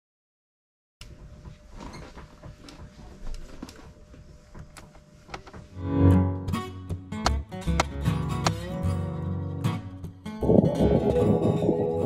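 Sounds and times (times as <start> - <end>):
plucked guitar: 5.8 - 12.0.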